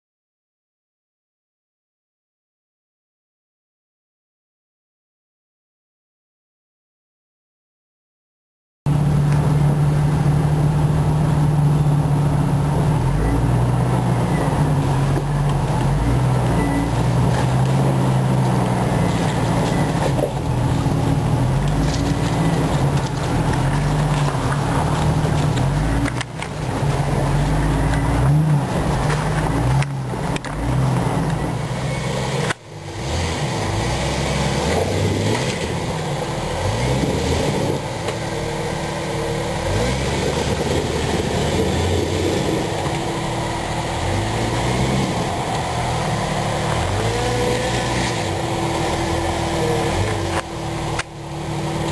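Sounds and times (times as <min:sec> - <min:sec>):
off-road vehicle engine driving: 0:08.9 - 0:51.9
off-road vehicle engine revving: 0:08.9 - 0:51.9.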